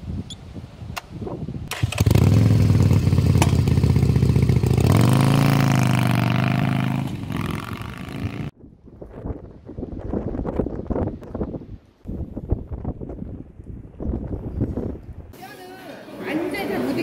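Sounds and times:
motorcycle engine idling and revving: 1.7s - 8.6s.

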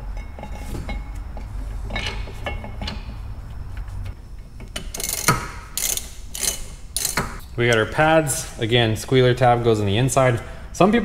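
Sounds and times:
ratchet wrench clicking: 4.8s - 7.4s.

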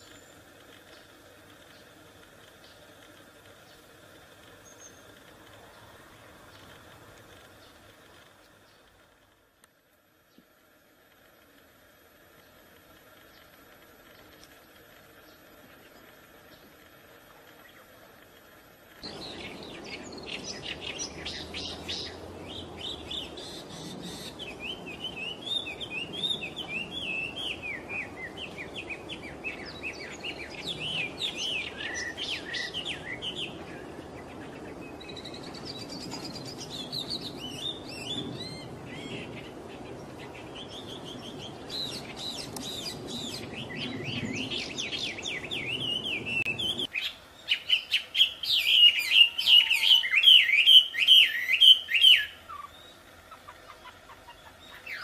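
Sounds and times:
faint steady hiss: 0.0s - 55.0s
songbird singing trilled phrases: 19.0s - 55.0s.

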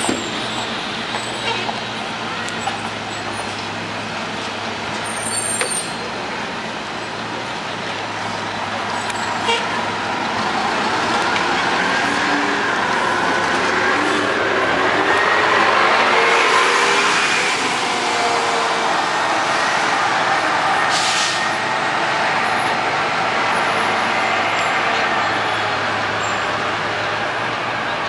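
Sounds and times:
bus engine pulling away: 0.0s - 28.0s
air brake hiss: 20.9s - 21.4s.

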